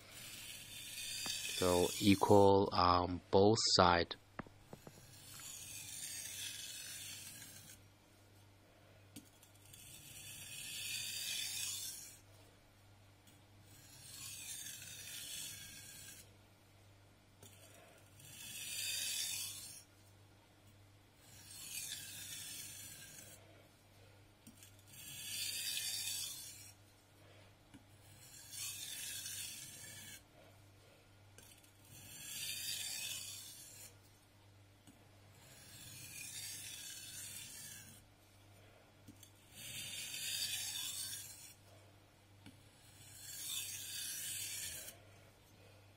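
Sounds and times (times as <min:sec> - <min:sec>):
knife scraping on whetstone: 0:00.0 - 0:02.4, 0:04.6 - 0:07.8, 0:09.2 - 0:12.3, 0:13.7 - 0:16.3, 0:17.4 - 0:19.9, 0:21.2 - 0:23.4, 0:24.4 - 0:26.8, 0:28.0 - 0:30.3, 0:31.4 - 0:34.1, 0:35.4 - 0:38.1, 0:39.1 - 0:41.7, 0:42.7 - 0:45.1.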